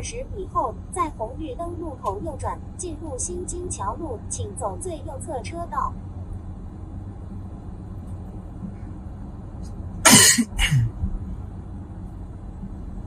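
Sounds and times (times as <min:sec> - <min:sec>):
car road and tyre noise: 0:00.0 - 0:13.0
person coughing: 0:10.1 - 0:10.9.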